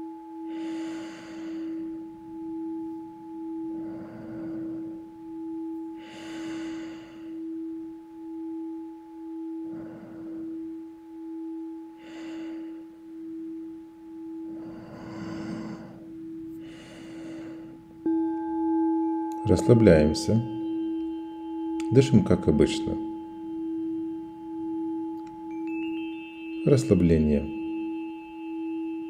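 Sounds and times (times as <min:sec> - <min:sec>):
singing bowl being struck: 0:00.0 - 0:16.7, 0:17.4 - 0:29.0
singing bowl ringing: 0:00.0 - 0:29.0
loud breaths through the nose: 0:05.9 - 0:07.5, 0:14.4 - 0:18.0.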